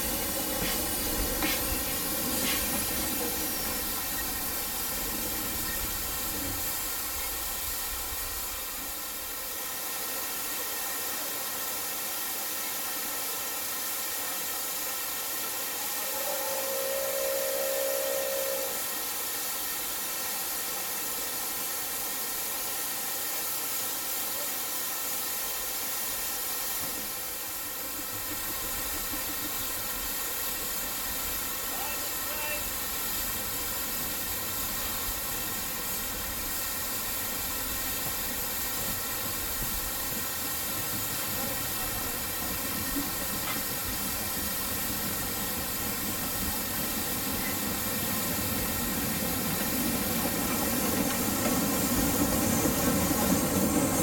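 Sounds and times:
steam locomotive hissing: 0.0 - 54.0
steam whistle: 15.6 - 19.1.

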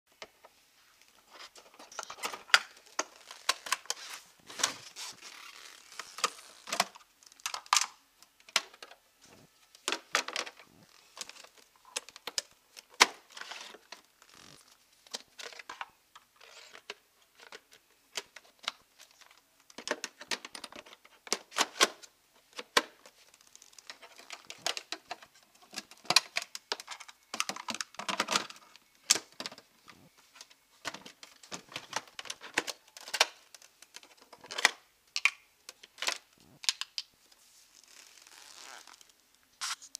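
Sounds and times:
rustling: 0.6 - 6.8, 37.2 - 39.9
plastic parts clicking and knocking: 1.3 - 4.8, 5.9 - 9.0, 9.7 - 14.4, 15.0 - 37.1.

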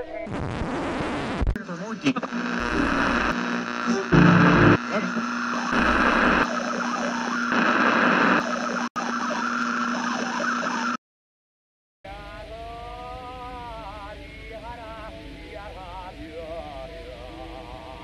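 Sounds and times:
low hum: 2.6 - 4.8, 5.6 - 6.5
harsh horror soundtrack noise: 3.9 - 4.8, 5.6 - 7.4.

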